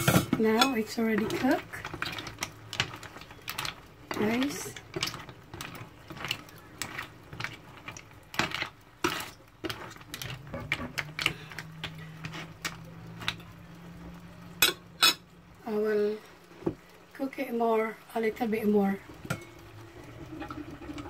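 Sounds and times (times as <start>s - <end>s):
mussel shells clacking in a pan: 0.0s - 15.3s, 19.0s - 20.0s
low steady hum: 0.0s - 21.0s.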